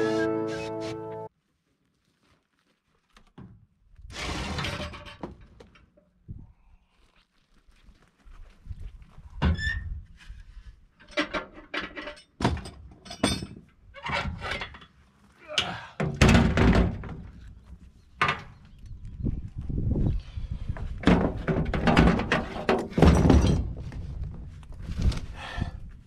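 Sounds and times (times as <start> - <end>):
metallic knocks and clanks: 11.0 - 14.9, 21.0 - 23.8.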